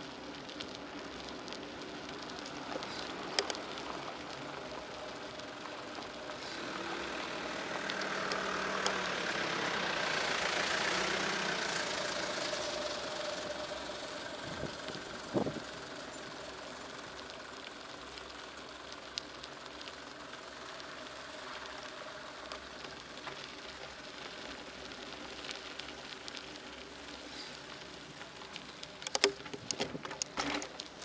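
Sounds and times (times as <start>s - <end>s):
bicycle tyres hissing on wet asphalt: 0.0s - 31.0s
bicycle clicks and rattles: 0.1s - 5.4s, 22.4s - 31.0s.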